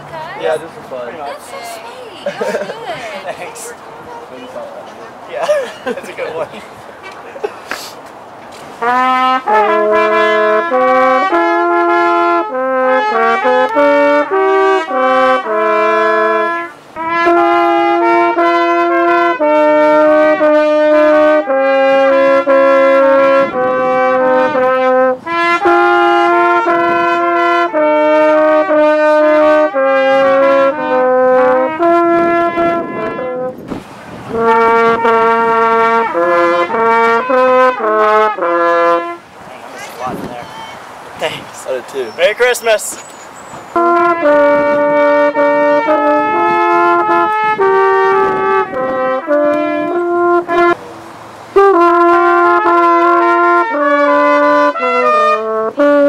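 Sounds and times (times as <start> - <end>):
trumpet playing: 0.1 - 3.8, 8.8 - 40.8, 43.7 - 50.9, 51.6 - 56.0
french horn playing: 8.8 - 33.7, 34.3 - 39.2, 43.7 - 50.8, 51.6 - 56.0.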